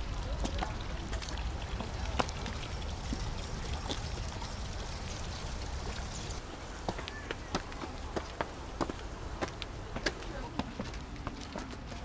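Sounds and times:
footsteps on stone steps: 0:00.4 - 0:04.1, 0:06.5 - 0:12.0.

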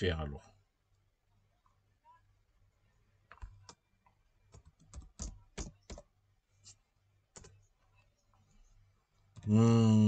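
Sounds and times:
computer keyboard typing: 0:04.5 - 0:06.1.

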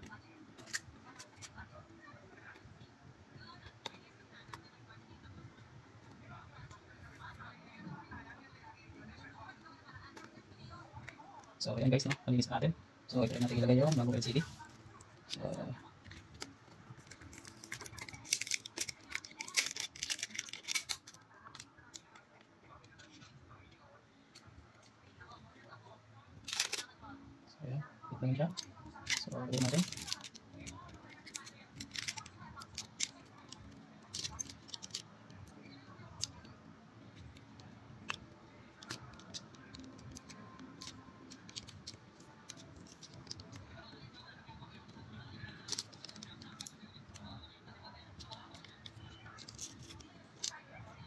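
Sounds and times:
small plastic clicks and crackling: 0:15.3 - 0:23.3, 0:28.5 - 0:36.5, 0:45.6 - 0:50.6.

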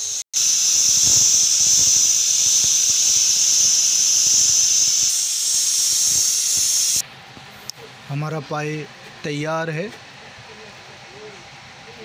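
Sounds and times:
pressure cooker steam hiss: 0:00.0 - 0:07.0.

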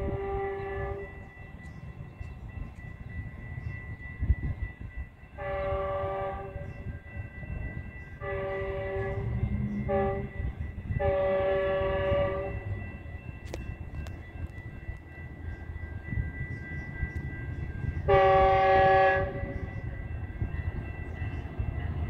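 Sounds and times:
train horn blasts: 0:00.0 - 0:01.3, 0:05.4 - 0:06.9, 0:08.2 - 0:12.8, 0:18.0 - 0:19.9
train rumbling: 0:00.0 - 0:22.0.

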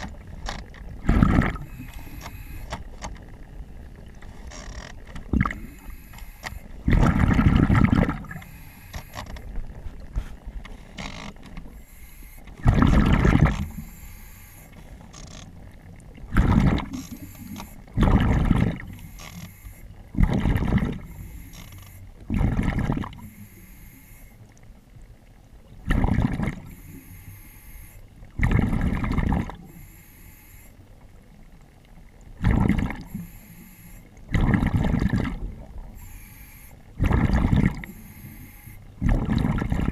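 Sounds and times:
steady background hiss: 0:00.1 - 0:06.9, 0:13.6 - 0:15.7, 0:26.6 - 0:28.3, 0:29.6 - 0:32.0, 0:33.0 - 0:34.3, 0:35.6 - 0:37.0, 0:37.8 - 0:39.0
diver breathing underwater: 0:01.0 - 0:02.8, 0:05.4 - 0:09.4, 0:10.0 - 0:15.2, 0:16.9 - 0:22.0, 0:23.2 - 0:24.4, 0:26.6 - 0:28.0, 0:29.6 - 0:30.8, 0:32.6 - 0:35.1, 0:35.9 - 0:39.9.

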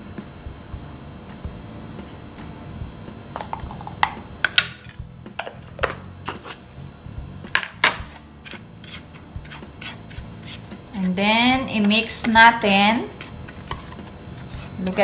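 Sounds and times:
jar set down on a tray: 0:03.4 - 0:04.8.

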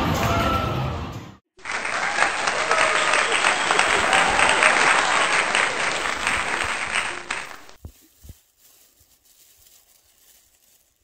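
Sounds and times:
people clapping: 0:01.6 - 0:07.8.

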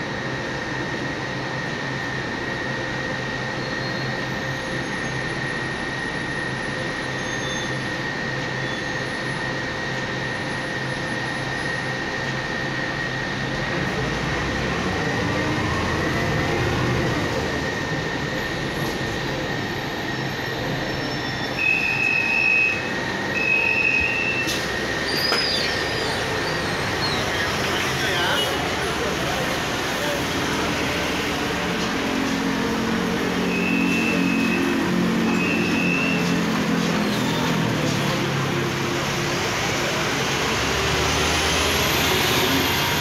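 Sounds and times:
bus engine and road rumble: 0:00.0 - 0:43.0
high whine: 0:00.0 - 0:43.0
sharp clatter and squeaks: 0:24.5 - 0:27.8.

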